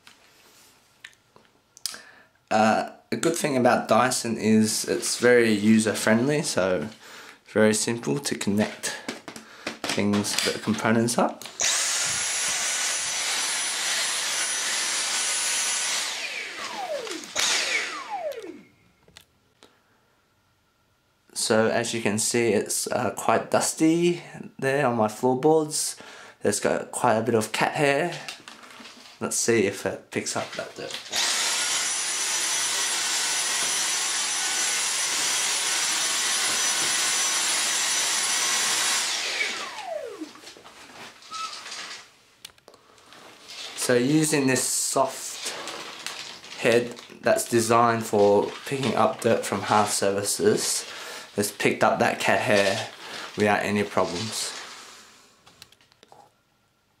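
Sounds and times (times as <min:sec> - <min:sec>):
vacuum cleaner whine: 0:11.6 - 0:18.9, 0:31.1 - 0:41.6
motor whine spinning down: 0:15.9 - 0:18.8, 0:39.1 - 0:40.4
faint handling sounds: 0:40.4 - 0:44.0.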